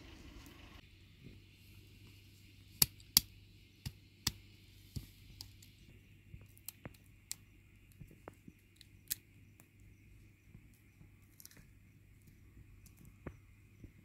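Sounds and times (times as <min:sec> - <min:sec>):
stone cracking walnuts: 0:02.8 - 0:04.4, 0:06.4 - 0:09.9.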